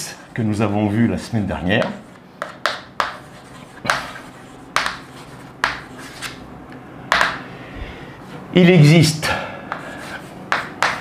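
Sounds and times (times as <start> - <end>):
chalk strokes on blackboard: 1.9 - 6.4, 9.7 - 11.0.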